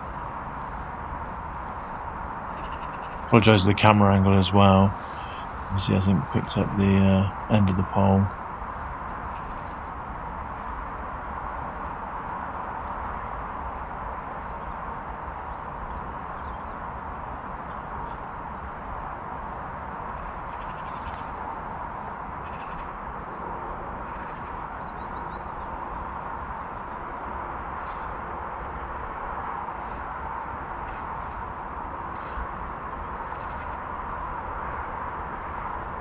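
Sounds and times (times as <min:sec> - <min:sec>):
steady outdoor rush: 0:00.0 - 0:36.0
bird chirps and trills: 0:04.4 - 0:09.7.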